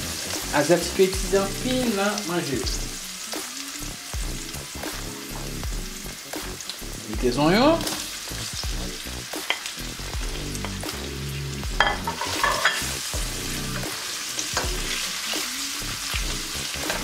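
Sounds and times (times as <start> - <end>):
onions sizzling in hot oil: 0.0 - 17.0
wooden spoon scraping a pan: 12.0 - 12.9.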